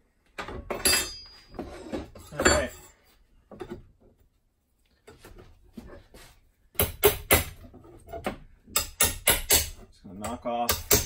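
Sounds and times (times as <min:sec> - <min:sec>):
hammer striking metal bar on wood: 0:00.7 - 0:01.6, 0:06.8 - 0:11.0.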